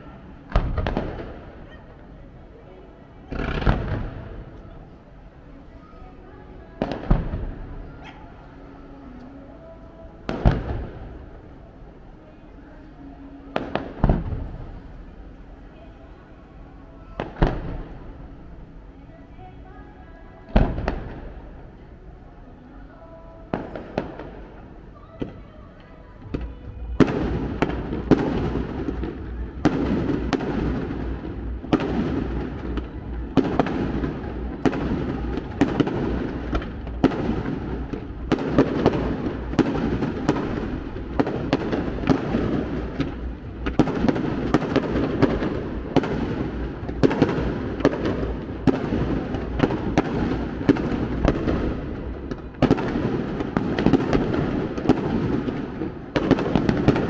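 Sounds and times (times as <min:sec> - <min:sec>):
fireworks booming and cracking: 0:00.0 - 0:02.0, 0:03.2 - 0:04.8, 0:06.8 - 0:07.9, 0:10.2 - 0:11.3, 0:13.5 - 0:15.2, 0:17.2 - 0:18.2, 0:20.5 - 0:21.6, 0:23.5 - 0:25.4, 0:26.2 - 0:57.0.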